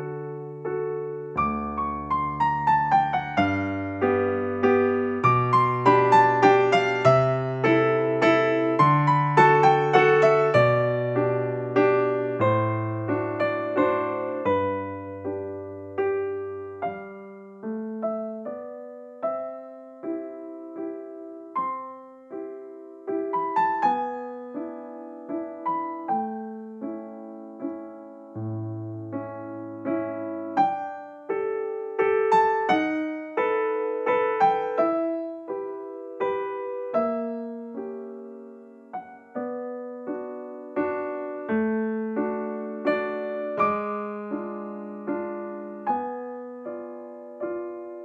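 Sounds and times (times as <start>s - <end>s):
gentle electric piano music: 0.0s - 48.0s.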